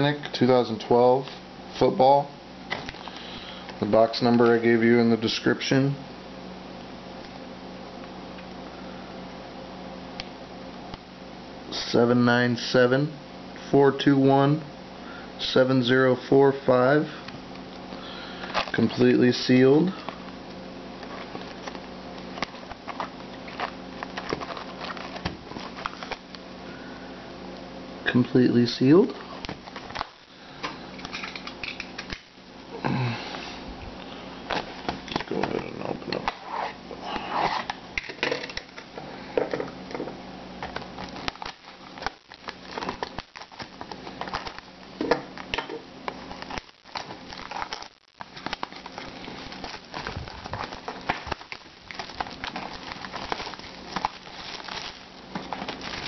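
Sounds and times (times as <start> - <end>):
plastic wrap crinkling: 17.9 - 26.4, 40.6 - 56.0.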